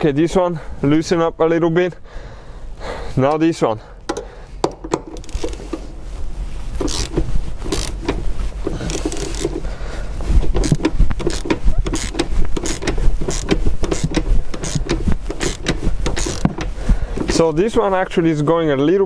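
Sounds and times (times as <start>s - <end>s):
hand ratchet clicking: 4.1s - 5.9s, 6.8s - 9.7s, 10.4s - 17.4s.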